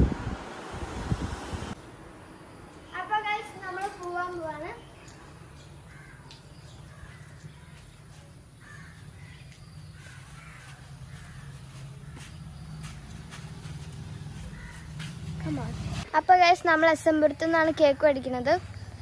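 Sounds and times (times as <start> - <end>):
birds calling: 2.3 - 16.0.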